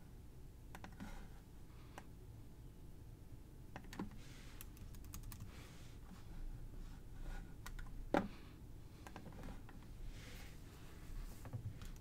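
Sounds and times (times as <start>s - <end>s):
keyboard and mouse clicks: 0.7s - 1.1s, 3.7s - 5.5s, 7.6s - 8.3s.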